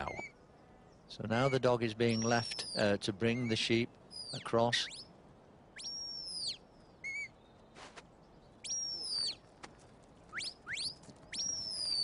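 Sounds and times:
sharp high whistles: 5.8 - 7.3, 8.7 - 9.4, 10.3 - 12.0.

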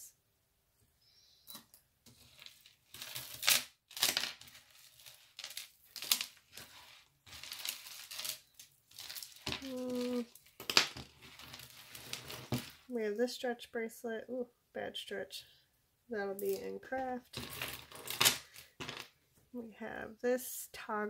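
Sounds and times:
necklaces and chains clinking: 7.3 - 10.7.

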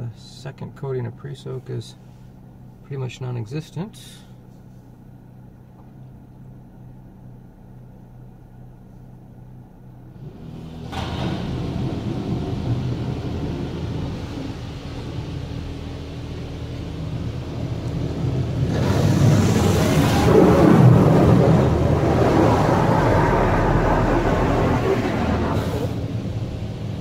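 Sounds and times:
quiet steady hum: 0.0 - 27.0
water spray hitting car: 10.8 - 26.6.

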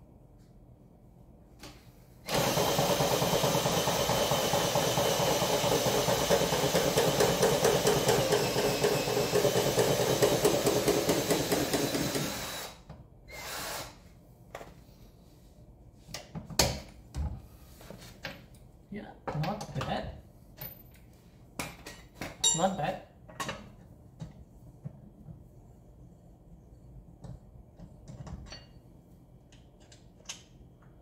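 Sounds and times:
power drill running: 2.3 - 14.0.

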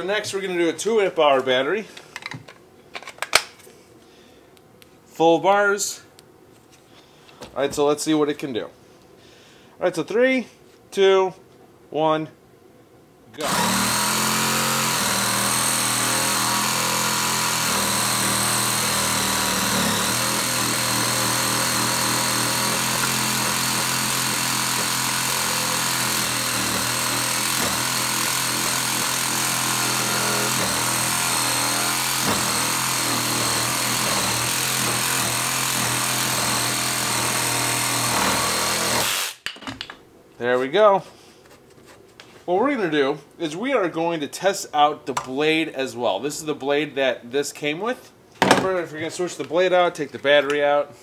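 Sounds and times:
reciprocating saw cutting wood: 13.4 - 39.4.

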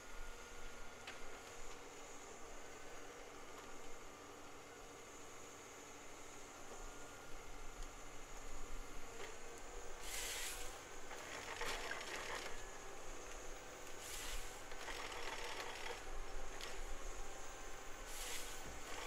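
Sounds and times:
machine engine hum: 0.0 - 19.0
hissing and crackling bursts: 10.0 - 10.7, 14.0 - 14.7, 18.1 - 19.0.

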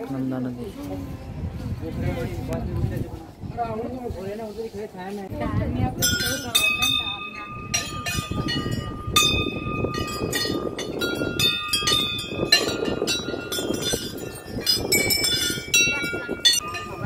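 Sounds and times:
brass bells ringing: 6.0 - 17.0.

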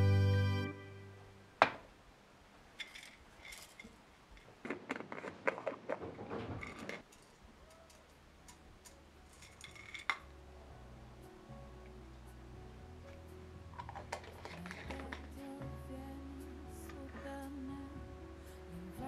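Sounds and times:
pill bottle cap clicks and rattles: 13.8 - 15.2.

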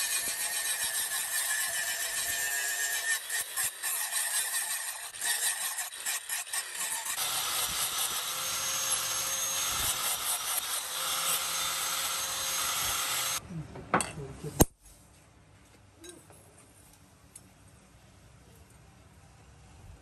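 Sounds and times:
angle grinder grinding steel: 0.0 - 13.4.

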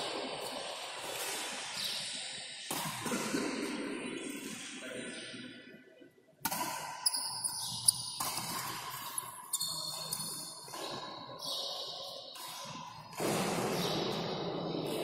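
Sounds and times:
racket striking shuttlecock: 6.4 - 9.2
shoes squeaking on court: 7.0 - 15.0.

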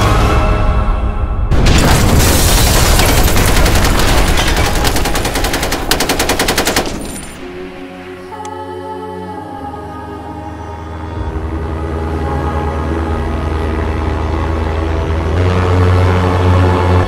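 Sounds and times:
machine-gun burst: 1.7 - 7.3
rapid gunfire: 1.7 - 7.4.

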